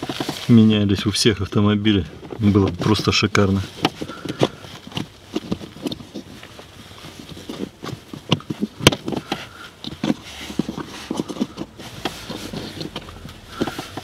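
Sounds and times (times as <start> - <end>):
rustling: 0.0 - 14.0
plastic clicks and knocks: 7.4 - 14.0.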